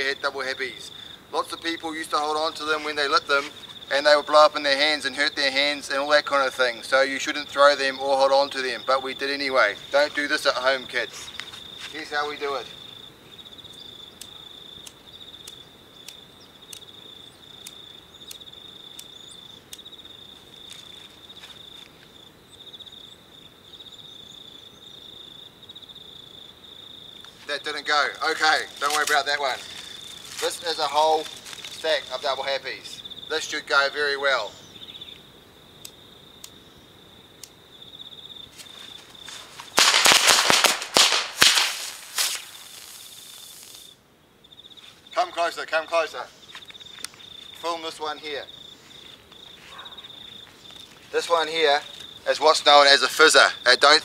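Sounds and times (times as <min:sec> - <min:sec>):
high insect trilling: 0:00.0 - 0:54.0
firecrackers banging: 0:39.3 - 0:43.9.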